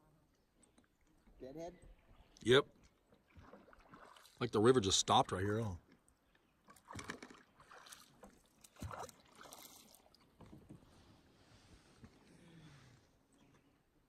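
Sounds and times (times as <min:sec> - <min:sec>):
paddle splashes and drips: 0:00.4 - 0:05.2, 0:05.8 - 0:11.2.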